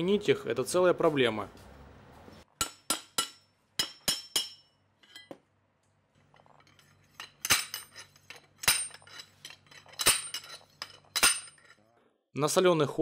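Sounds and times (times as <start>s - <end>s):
steel rod striking metal: 2.6s - 5.3s.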